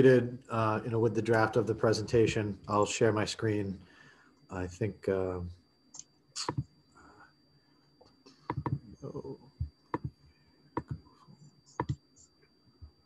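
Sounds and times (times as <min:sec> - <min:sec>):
faint high whine: 0:00.0 - 0:13.0
computer mouse clicking: 0:08.4 - 0:08.8, 0:10.8 - 0:11.0, 0:11.8 - 0:12.0.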